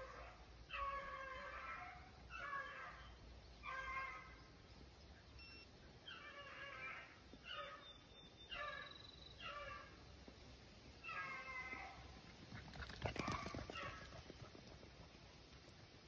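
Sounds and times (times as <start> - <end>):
dogs baying faintly: 0.0 - 4.4, 11.0 - 15.5.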